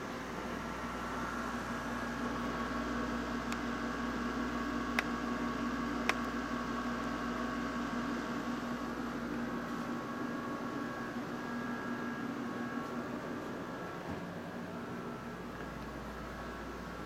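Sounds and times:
air conditioner humming: 0.0 - 17.0.

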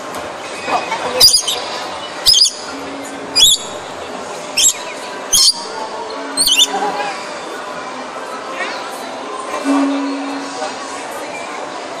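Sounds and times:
parrot screeching: 1.2 - 1.7, 2.3 - 2.6, 3.4 - 3.8, 4.6 - 5.7, 6.4 - 6.7.

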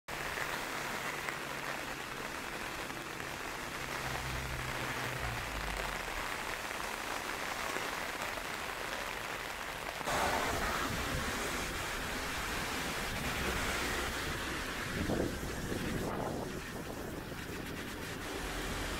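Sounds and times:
heavy rain on pavement: 0.1 - 18.9
low rumble: 3.7 - 6.7.

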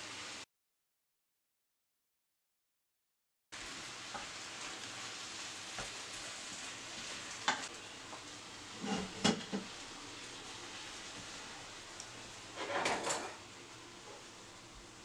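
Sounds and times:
faint steady hiss: 3.6 - 15.0
kitchen utensils clicking and knocking: 8.8 - 9.6, 12.6 - 13.4.

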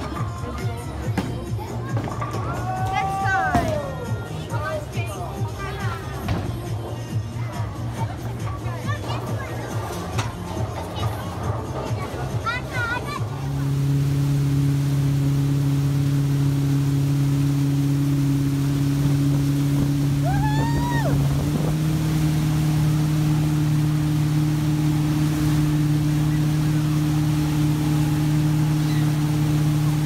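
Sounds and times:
motorboat engine running: 0.0 - 30.0
wake water churning: 14.1 - 30.0.

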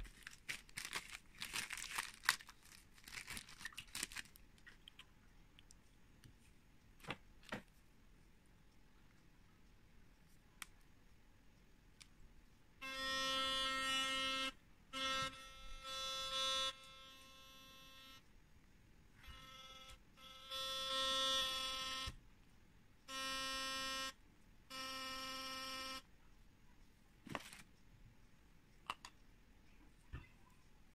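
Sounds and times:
electric toothbrush buzzing: 12.8 - 18.2, 19.2 - 22.2, 23.1 - 26.0.

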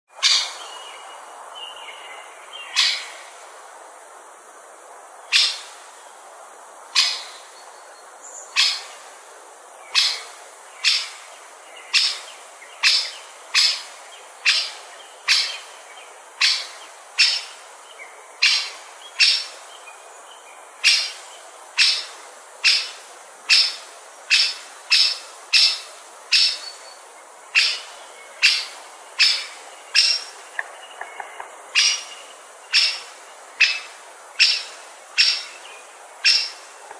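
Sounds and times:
woodpecker sharp kik calls: 2.7 - 3.1, 5.3 - 5.7, 7.0 - 7.4, 8.6 - 8.9, 9.9 - 11.2, 11.9 - 15.7, 16.4 - 17.6, 18.4 - 19.5, 20.8 - 21.2, 21.8 - 26.7, 27.6 - 35.6, 36.2 - 36.6.

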